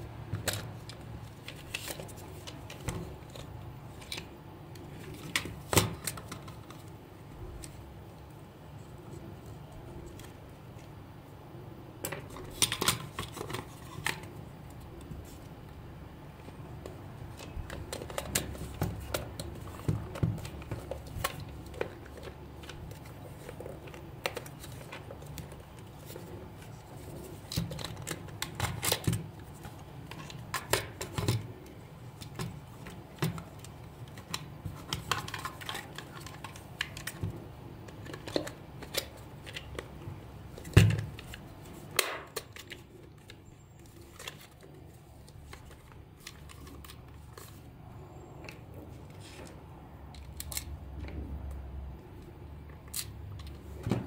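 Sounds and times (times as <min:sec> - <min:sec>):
plastic parts clicking and knocking: 0:16.8 - 0:39.9.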